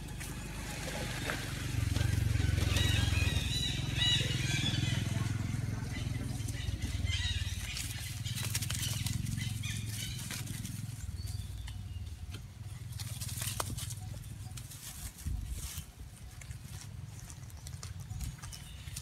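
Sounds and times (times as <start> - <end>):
low steady rumble: 0.0 - 19.0
scuffling on dry leaves: 5.9 - 19.0.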